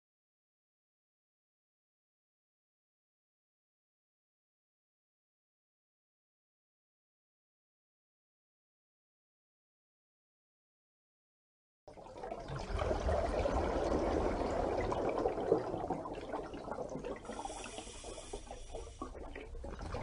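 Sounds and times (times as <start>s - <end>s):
water rushing and pouring: 12.0s - 20.0s.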